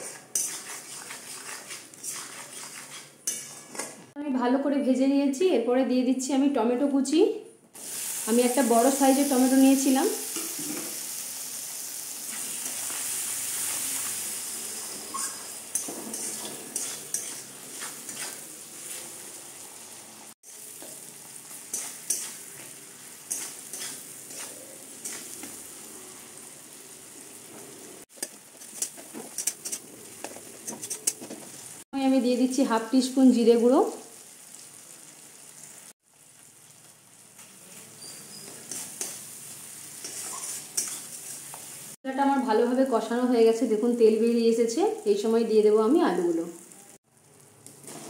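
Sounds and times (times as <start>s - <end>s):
tomato sizzling in hot oil: 0.0s - 3.9s, 7.8s - 48.0s
metal spatula scraping pan: 0.0s - 4.0s, 13.6s - 19.2s, 21.6s - 25.8s, 28.2s - 31.4s, 37.9s - 39.3s, 40.0s - 41.5s.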